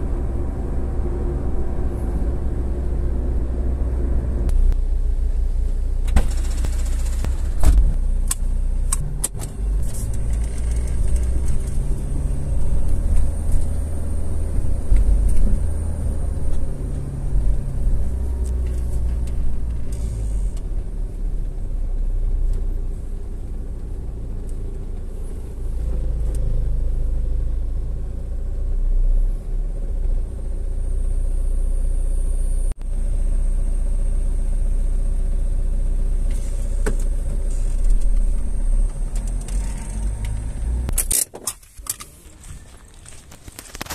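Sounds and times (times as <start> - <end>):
car engine and road noise: 0.0 - 43.9
sharp clicks and knocks: 6.1 - 11.8.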